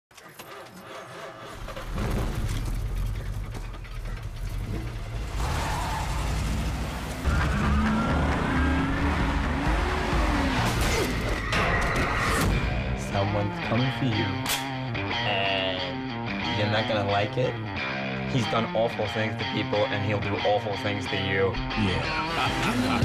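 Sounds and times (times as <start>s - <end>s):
car engine revving: 0.4s - 13.1s, 22.0s - 23.0s.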